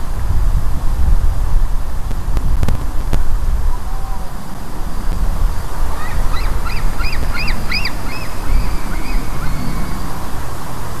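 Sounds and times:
wind rumble on microphone: 0.0 - 11.0
eaglets calling: 3.7 - 10.8.

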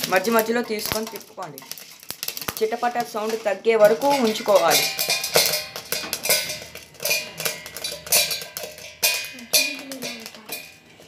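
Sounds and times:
grains popping against metal lid: 0.0 - 11.0.

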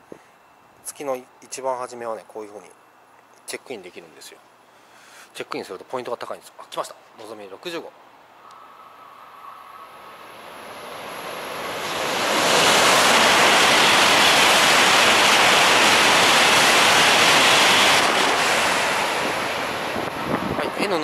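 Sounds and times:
high-speed train passing: 8.1 - 21.0.

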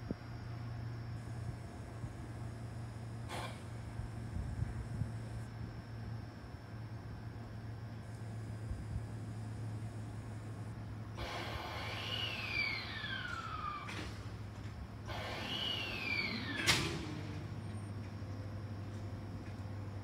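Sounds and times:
low hum of stopped train: 0.0 - 20.0
train doors hissing and squealing: 3.2 - 4.0, 11.2 - 18.7.

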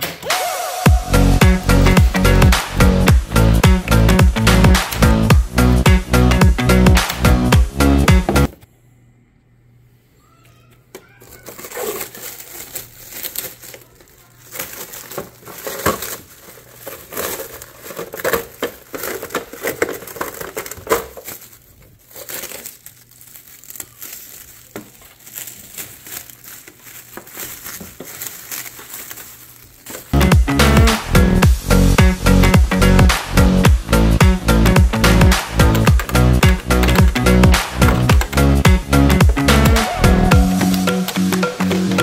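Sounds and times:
electronic dance music: 0.1 - 8.5, 30.2 - 42.0
plastic wrap crinkling: 11.0 - 30.2.

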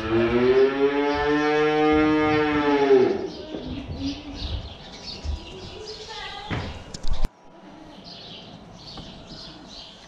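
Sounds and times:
barn animal calling: 0.0 - 4.4.

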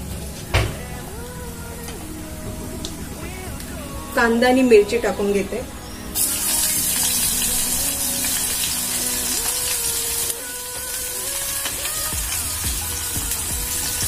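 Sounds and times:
vegetables sizzling in hot oil: 6.2 - 14.0.

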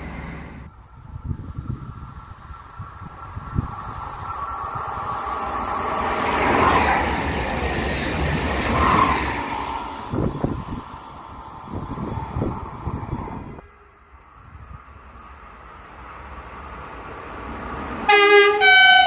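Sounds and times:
passenger train passing: 0.0 - 19.0
short train horn tones: 18.1 - 19.0.

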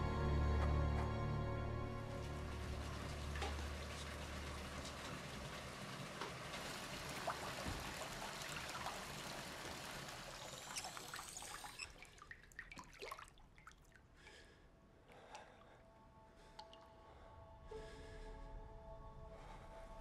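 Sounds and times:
water running from bath tap: 2.8 - 13.3
water drips and splashes: 3.3 - 14.3.

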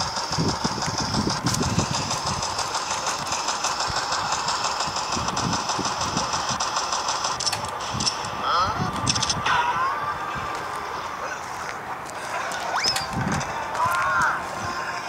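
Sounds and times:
wind rumble on microphone: 0.0 - 2.7, 5.0 - 6.6, 7.6 - 10.7, 13.0 - 14.9.

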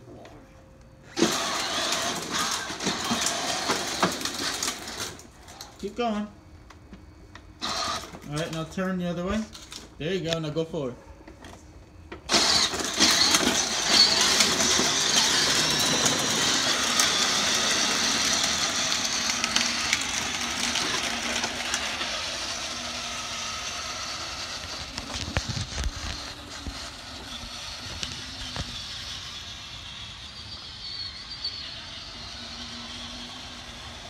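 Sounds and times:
toy car electric drive whining: 1.0 - 6.3, 7.3 - 8.7, 11.4 - 34.0
plastic wheels rolling on ground: 1.1 - 5.8, 12.2 - 29.7.

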